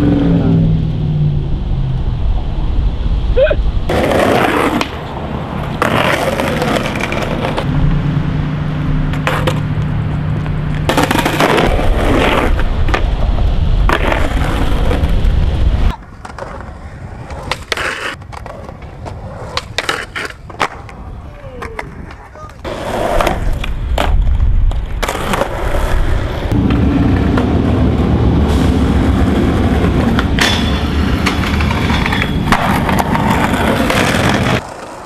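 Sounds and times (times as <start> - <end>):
skateboard wheels rolling on asphalt: 0.0 - 35.0
skateboard clacks: 3.9 - 7.7, 9.1 - 9.9, 10.7 - 27.9, 29.4 - 35.0.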